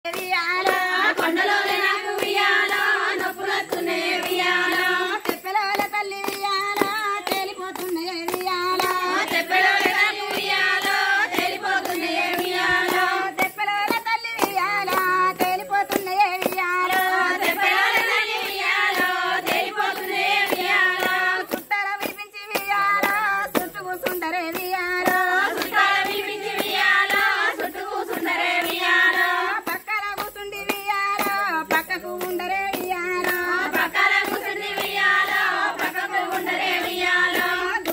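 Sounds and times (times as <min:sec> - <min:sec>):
rhythmic hand clapping: 0:00.0 - 0:37.9
women singing folk song: 0:00.0 - 0:37.9.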